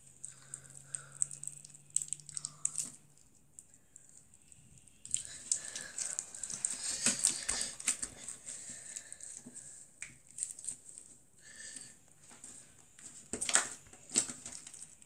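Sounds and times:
slime clicking and crackling: 0.0 - 8.2, 10.0 - 11.1, 13.2 - 15.0.

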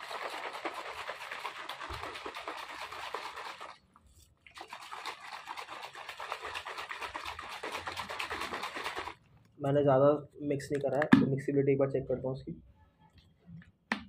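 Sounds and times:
liquid sloshing in shaker bottle: 0.0 - 9.6.

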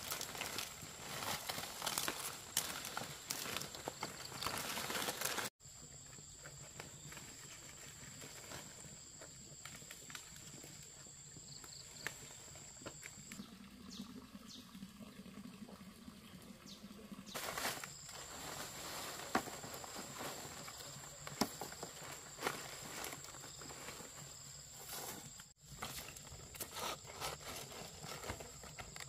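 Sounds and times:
palm leaves rustling: 0.0 - 5.5, 17.3 - 29.0.

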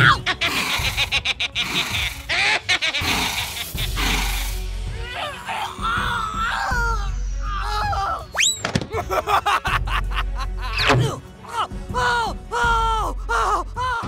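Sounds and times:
background music: 0.0 - 14.0
rising whistle-like swoop: 7.4 - 8.7.

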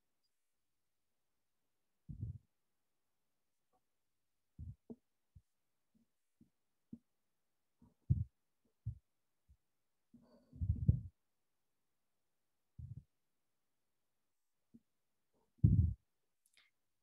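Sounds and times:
soft low thumps: 2.1 - 2.4, 4.6 - 5.5, 8.0 - 9.0, 10.6 - 11.1, 12.8 - 13.1, 15.6 - 16.0.

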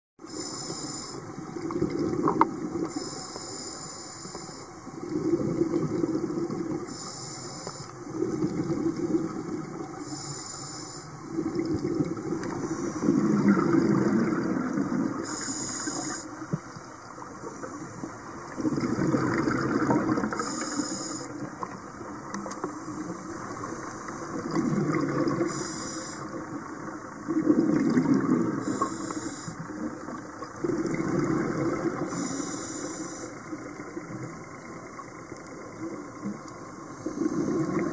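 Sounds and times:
regulator inhale hiss: 0.2 - 1.3, 2.9 - 4.8, 6.8 - 8.0, 9.9 - 11.3, 12.4 - 13.2, 15.1 - 16.5, 20.2 - 21.5, 25.4 - 26.4, 28.5 - 29.7, 32.0 - 33.5
exhaled bubbles rushing: 1.5 - 2.8, 5.0 - 6.9, 8.0 - 10.0, 11.3 - 15.3, 18.3 - 20.5, 24.3 - 25.6, 26.3 - 28.8, 29.6 - 32.2, 37.1 - 37.9.

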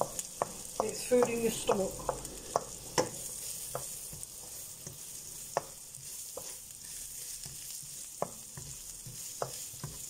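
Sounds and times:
vegetables sizzling in oil: 0.0 - 10.0.

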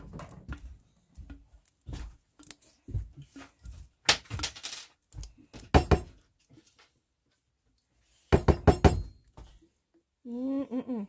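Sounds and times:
wooden spoon knocking glass jar: 8.4 - 9.3.

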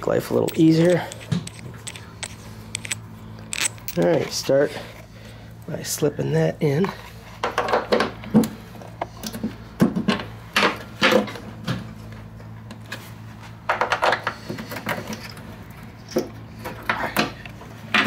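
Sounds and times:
steady low hum: 0.0 - 7.5
metal clinks and knocks: 0.2 - 4.3.

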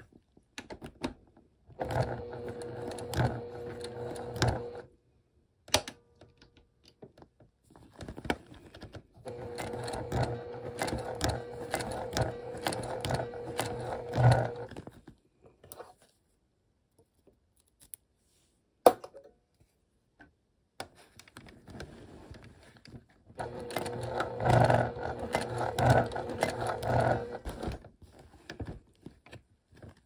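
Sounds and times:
sewing machine stitching: 1.7 - 4.9, 9.2 - 14.8, 23.4 - 27.9.

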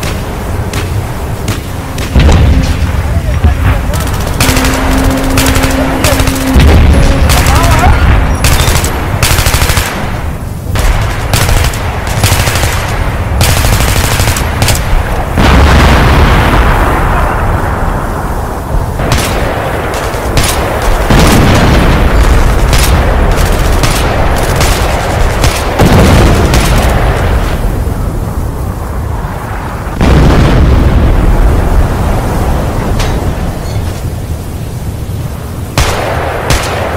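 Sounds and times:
rapid gunfire: 0.0 - 15.7, 19.0 - 27.4, 35.8 - 36.9
heavy booming blasts: 0.0 - 36.9.

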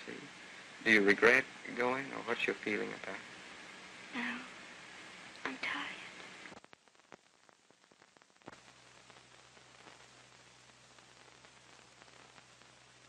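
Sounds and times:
film soundtrack hiss: 0.0 - 13.0
low steady hum: 0.0 - 13.0
crackling clicks: 5.3 - 13.0.

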